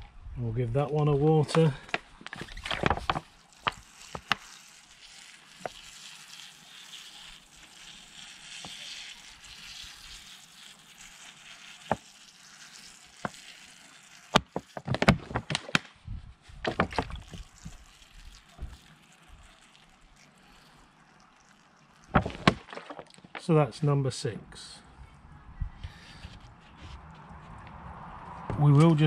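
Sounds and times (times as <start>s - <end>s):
water sprinkling onto compost: 1.2s - 15.9s, 16.6s - 23.6s.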